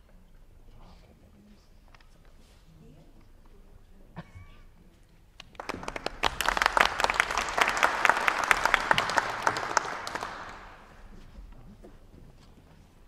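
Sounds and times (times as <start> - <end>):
audience applauding: 5.5 - 11.2.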